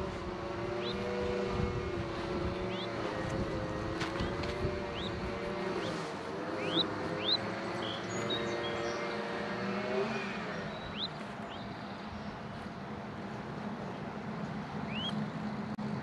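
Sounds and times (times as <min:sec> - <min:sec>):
vehicle engine running: 0:00.0 - 0:16.0
sharp rising bird chirps: 0:04.8 - 0:12.4, 0:14.8 - 0:15.2.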